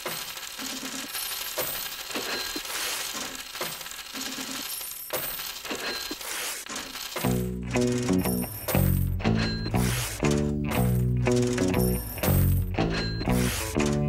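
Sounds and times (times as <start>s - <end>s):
coins clinking and jingling: 0.0s - 14.0s
music: 7.3s - 14.0s.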